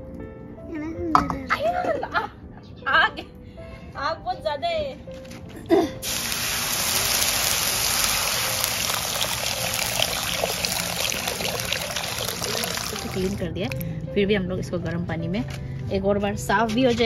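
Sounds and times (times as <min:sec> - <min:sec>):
water pouring onto hot metal: 0:06.0 - 0:13.8.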